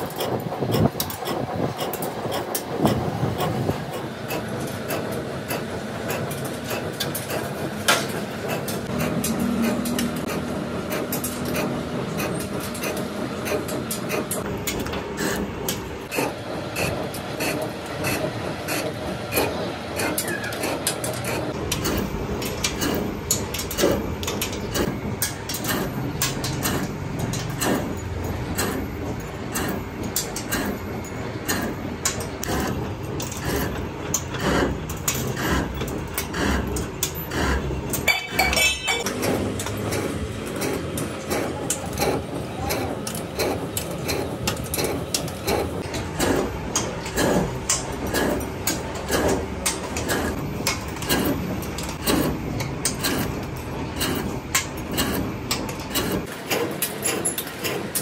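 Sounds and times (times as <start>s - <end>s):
machinery running: 0.0s - 58.0s
sharp metallic clicks and knocks: 0.0s - 58.0s.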